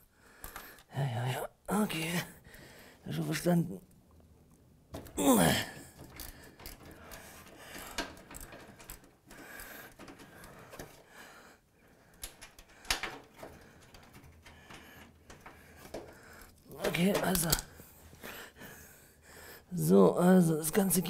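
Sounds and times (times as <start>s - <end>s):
tools clicking and scraping metal: 5.8s - 11.1s.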